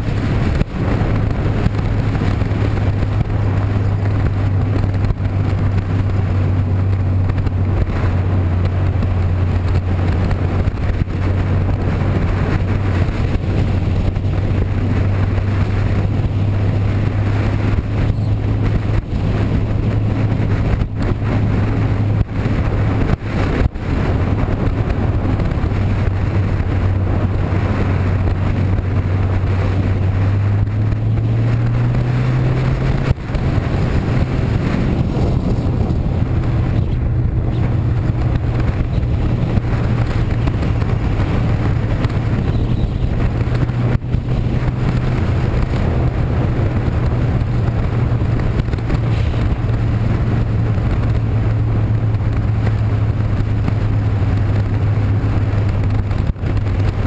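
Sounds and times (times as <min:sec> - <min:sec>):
noisy rush: 0:00.0 - 0:57.0
vehicle engine running: 0:00.0 - 0:57.0.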